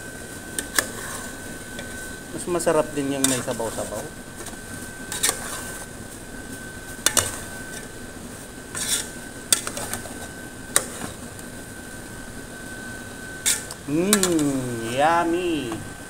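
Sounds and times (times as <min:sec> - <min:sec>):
faint high tone: 0:13.9 - 0:15.9.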